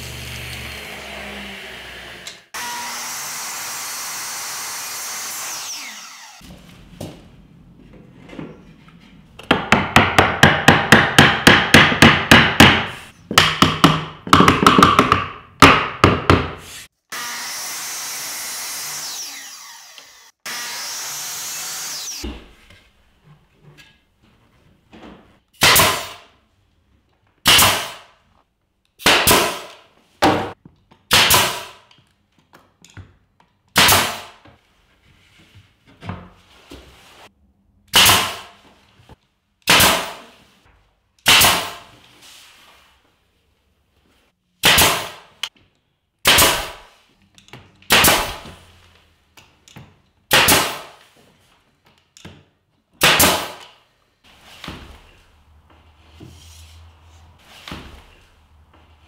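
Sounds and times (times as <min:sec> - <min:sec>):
nail gun firing into wood: 0:27.5 - 0:28.0, 0:29.0 - 0:29.8, 0:31.1 - 0:31.8, 0:33.8 - 0:34.4, 0:37.9 - 0:38.5, 0:39.6 - 0:40.2, 0:41.2 - 0:41.8, 0:44.6 - 0:45.2, 0:46.2 - 0:46.8, 0:47.9 - 0:48.5, 0:50.3 - 0:51.0, 0:53.0 - 0:53.8.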